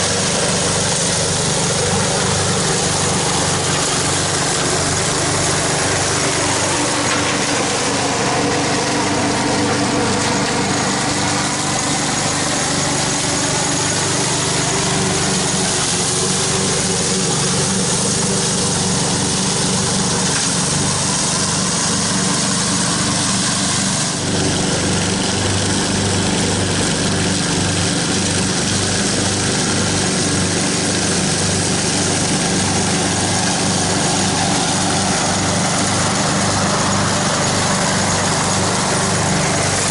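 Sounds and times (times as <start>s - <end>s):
mower chopping dry leaves: 0.0s - 39.9s
riding lawn mower engine: 0.0s - 39.9s.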